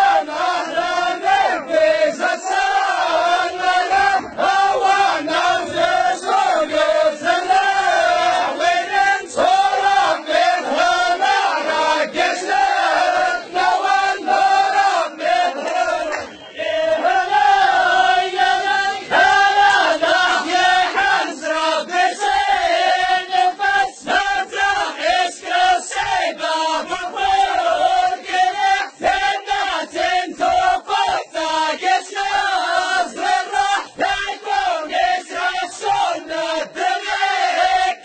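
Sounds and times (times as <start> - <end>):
male chorus chanting in unison: 0.0 - 38.0
handclaps: 15.6 - 16.5.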